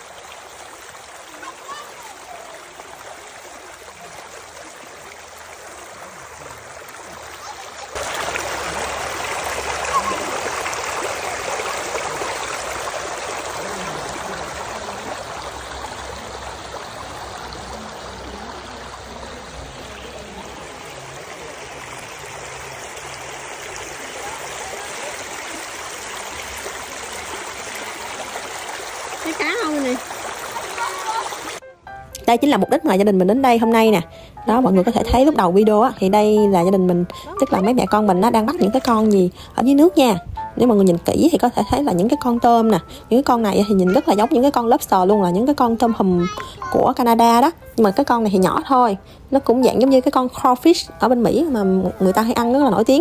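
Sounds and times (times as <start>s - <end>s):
creek water flowing: 0.0s - 53.0s.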